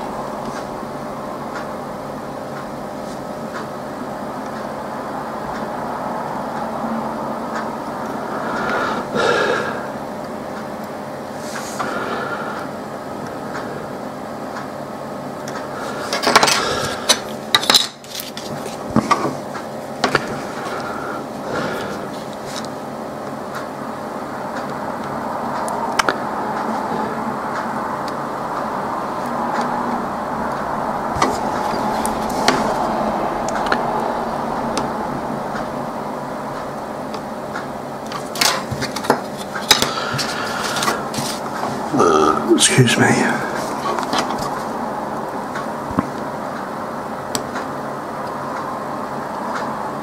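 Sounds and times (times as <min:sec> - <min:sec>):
steady background hum: 0:00.0 - 0:50.0
steady rushing noise: 0:24.0 - 0:50.0.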